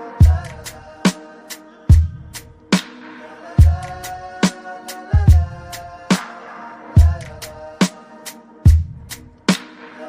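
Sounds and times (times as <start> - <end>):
hip-hop beat music: 0.0 - 10.0
deep kick drum: 5.2 - 5.5, 8.7 - 9.0.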